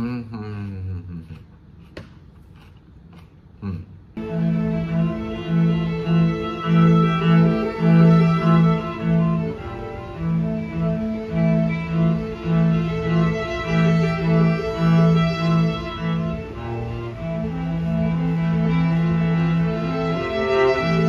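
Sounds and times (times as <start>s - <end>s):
cello bowing low notes: 4.2s - 21.0s
sustained violin lines: 4.2s - 21.0s.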